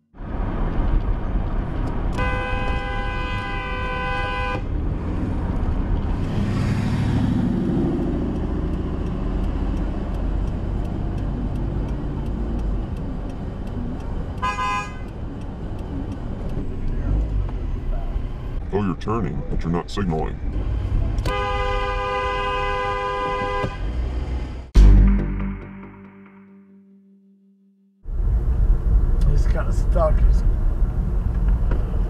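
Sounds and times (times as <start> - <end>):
road and engine noise: 0.0 - 24.8, 28.0 - 32.0
car horn blaring: 2.1 - 4.7, 14.4 - 15.1, 21.2 - 23.9.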